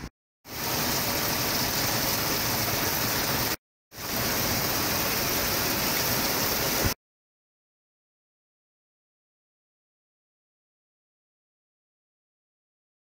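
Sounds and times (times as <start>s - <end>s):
heavy rain falling: 0.5s - 7.0s.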